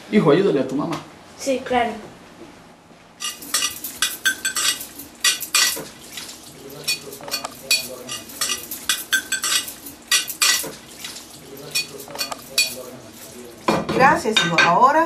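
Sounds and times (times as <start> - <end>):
ceramic dishes clinking in sink: 3.2 - 6.0, 6.7 - 14.9.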